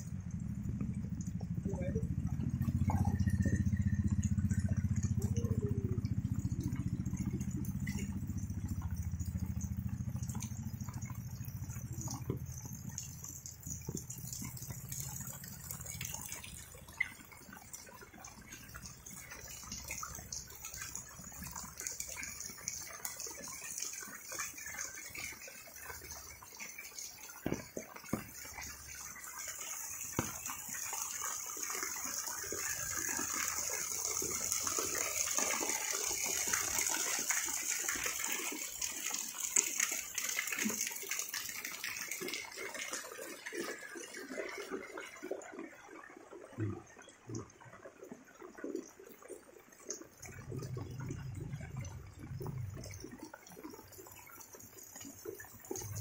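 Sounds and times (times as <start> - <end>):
steady rain falling: 0.0 - 44.9, 49.9 - 56.0
sharp drips and splashes: 0.0 - 56.0.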